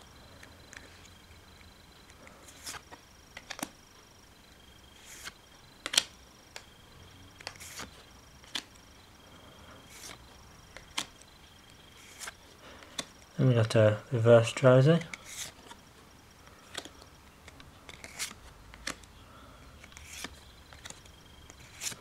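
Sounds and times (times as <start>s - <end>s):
cards sliding: 2.1s - 3.8s, 4.8s - 6.7s, 7.4s - 8.8s, 9.8s - 13.7s, 15.0s - 15.8s, 16.5s - 19.1s, 19.8s - 22.0s
card snapping: 5.2s - 6.7s, 7.4s - 8.7s.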